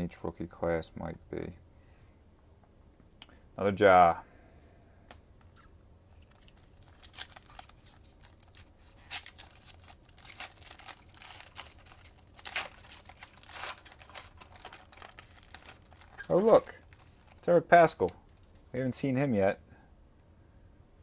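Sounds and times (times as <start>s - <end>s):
foil wrapper tearing and crinkling: 6.1s - 17.5s.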